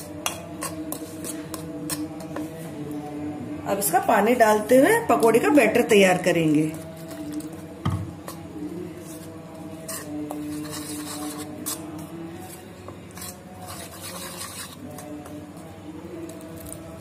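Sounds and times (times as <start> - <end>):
spoon scraping flour in bowl: 0.0 - 3.1, 6.6 - 16.8.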